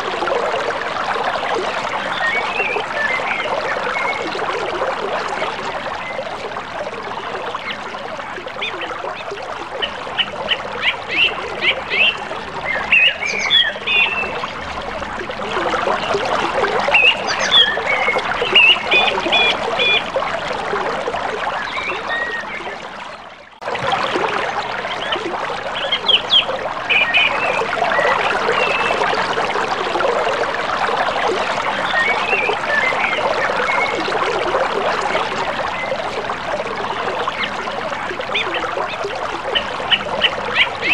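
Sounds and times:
birds chirping: 0:08.6 - 0:14.6, 0:16.9 - 0:20.1, 0:24.9 - 0:29.0, 0:39.6 - 0:40.9.

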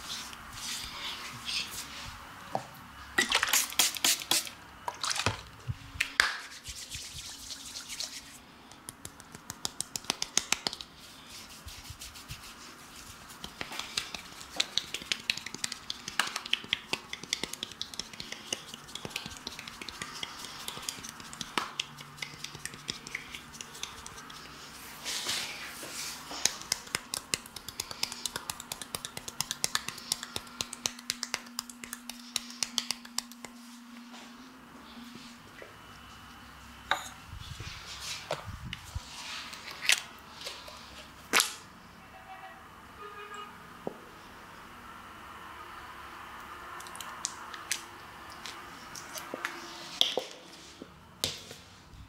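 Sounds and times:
fingers rubbing skin: 0:06.4 - 0:24.8, 0:26.0 - 0:33.8.

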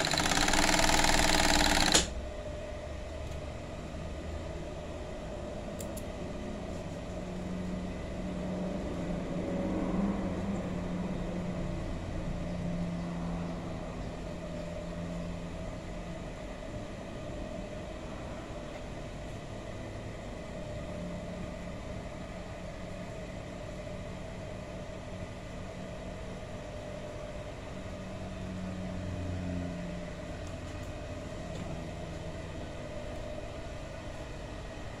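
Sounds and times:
sewing machine motor hum: 0:00.0 - 0:02.2.

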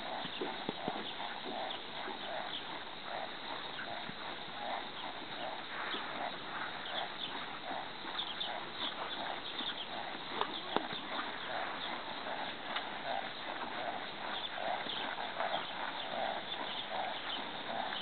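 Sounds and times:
horse hooves on soft dirt: 0:00.0 - 0:18.0.

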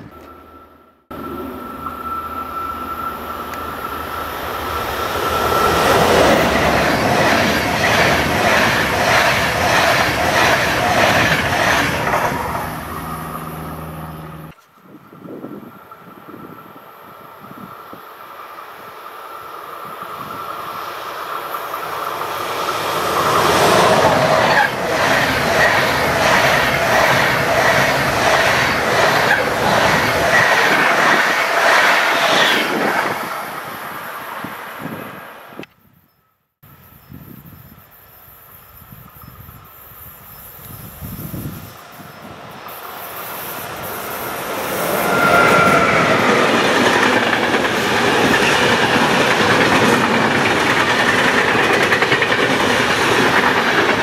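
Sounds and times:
train wheel clatter: 0:05.0 - 0:13.3, 0:43.6 - 0:54.0.

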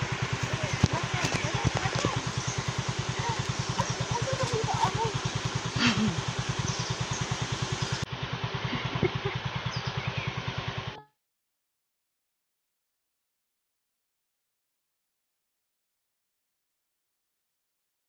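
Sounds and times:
small engine idling: 0:00.0 - 0:11.2.

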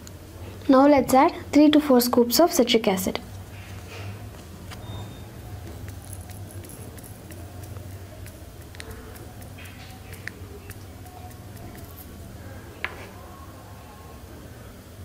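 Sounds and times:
steady low hum: 0:00.0 - 0:15.0
fingers opening small vial: 0:05.5 - 0:12.2.

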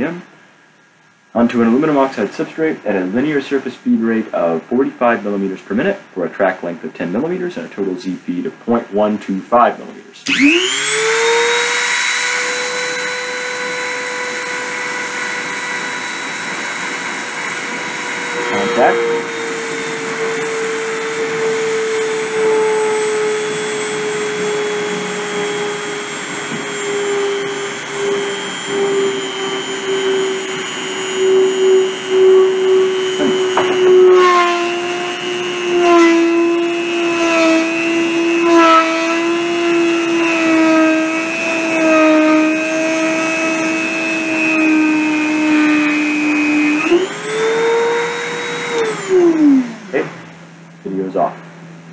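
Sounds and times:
rotary tool whine: 0:10.2 - 0:50.8.

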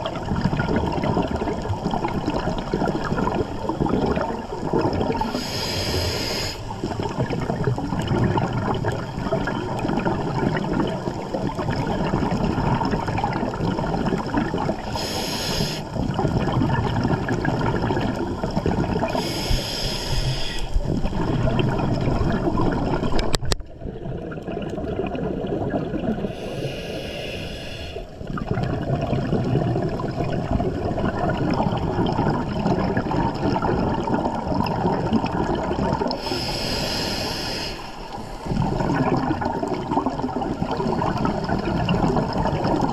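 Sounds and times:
exhaled bubbles hissing: 0:00.0 - 0:42.9
low underwater rumble: 0:20.6 - 0:27.2.

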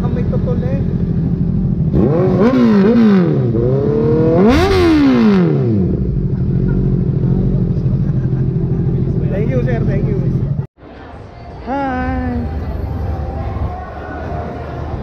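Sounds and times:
motorcycle engine idling and revving: 0:00.0 - 0:10.7.

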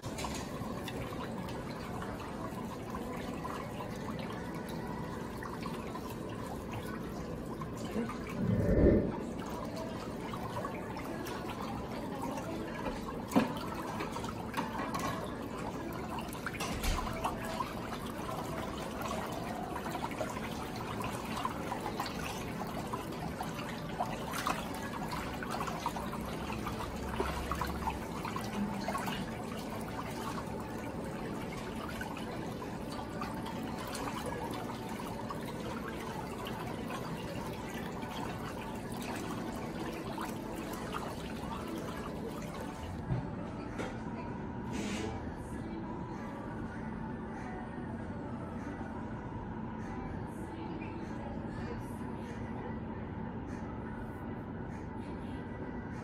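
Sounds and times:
whirlpool jets churning water: 0:00.0 - 0:43.4.

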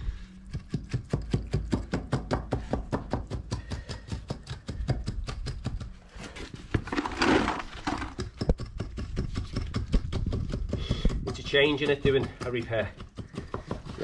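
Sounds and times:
timber tapping wet concrete: 0:00.5 - 0:06.0, 0:06.7 - 0:14.0
loud rough scraping noise: 0:06.2 - 0:08.2.

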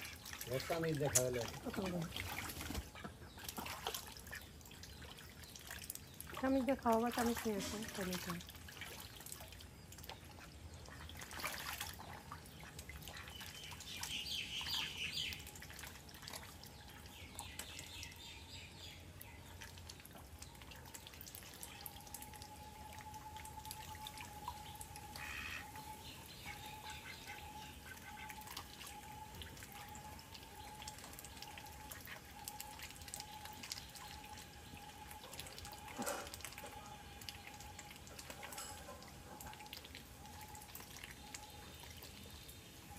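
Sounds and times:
ducks splashing in water: 0:00.0 - 0:18.2, 0:19.1 - 0:42.8
water dripping: 0:00.0 - 0:42.9
faint steady tone: 0:19.0 - 0:42.9.

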